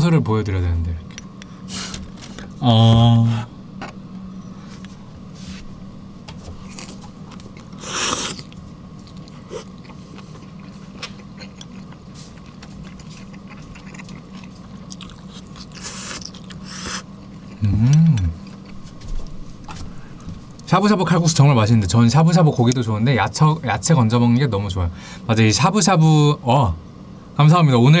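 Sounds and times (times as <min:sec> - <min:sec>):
person humming: 0:02.6 - 0:03.5, 0:17.6 - 0:18.4
chewing food: 0:06.6 - 0:19.8.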